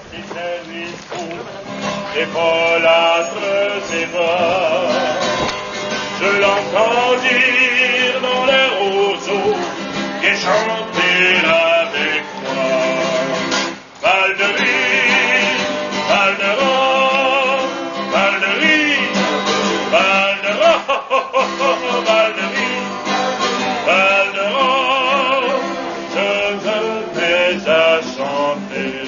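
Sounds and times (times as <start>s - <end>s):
acoustic guitar: 0.0s - 29.0s
man singing: 0.0s - 29.0s.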